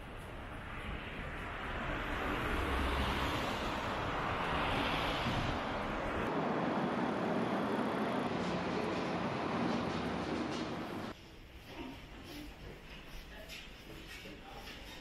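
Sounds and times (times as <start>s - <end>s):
steady traffic: 0.0s - 14.8s
vehicle passing: 0.5s - 11.2s.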